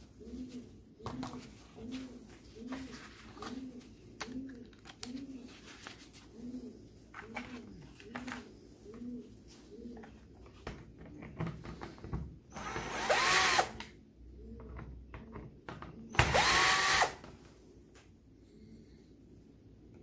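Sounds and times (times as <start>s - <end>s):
cordless drill motor whine: 12.5s - 13.8s, 16.2s - 17.2s.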